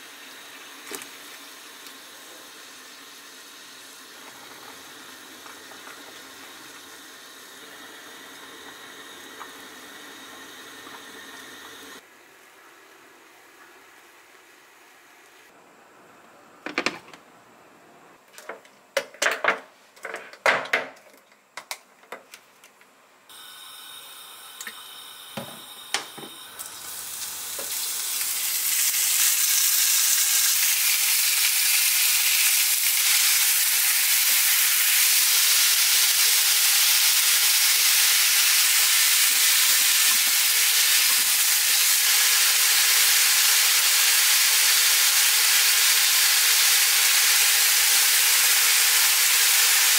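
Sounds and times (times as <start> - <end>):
meat sizzling in a pan: 0.0 - 12.0, 23.3 - 49.9.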